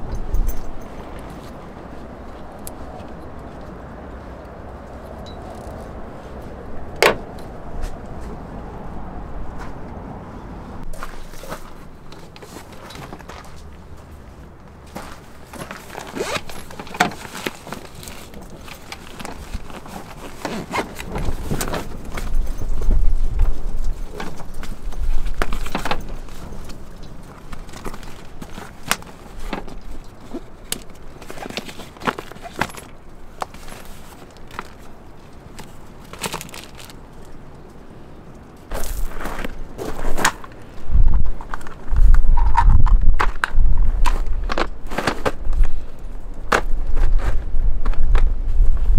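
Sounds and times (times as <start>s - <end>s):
cloth rustling and rubbing: 14.2s - 23.8s
fabric rustling: 14.2s - 37.0s.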